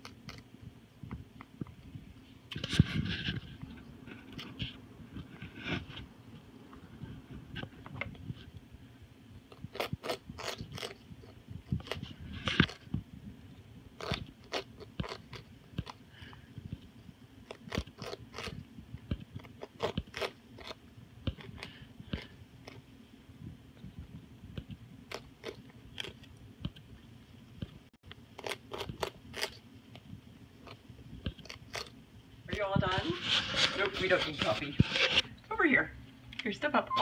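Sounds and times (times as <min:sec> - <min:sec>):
parrot crunching squash: 0:00.0 - 0:00.5, 0:09.5 - 0:13.0, 0:13.9 - 0:22.9, 0:25.0 - 0:26.9, 0:28.0 - 0:35.3.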